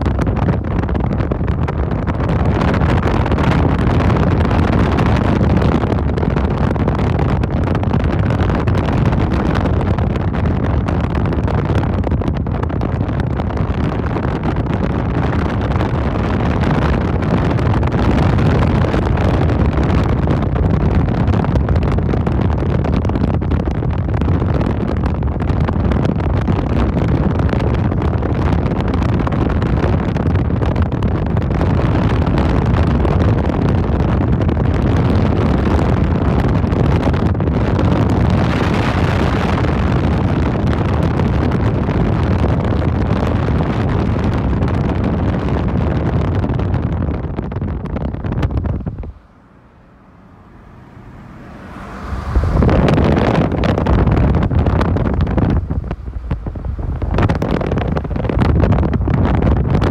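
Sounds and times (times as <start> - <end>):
vehicle driving on road: 0.0 - 59.9.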